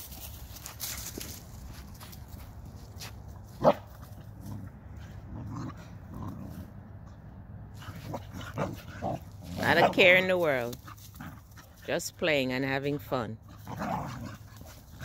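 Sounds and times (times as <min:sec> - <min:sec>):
dogs scuffling on dry leaves: 0:00.0 - 0:03.6.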